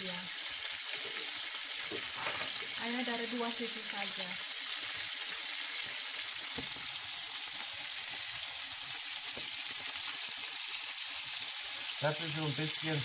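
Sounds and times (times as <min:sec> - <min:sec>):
meat sizzling in a frying pan: 0:00.0 - 0:13.0.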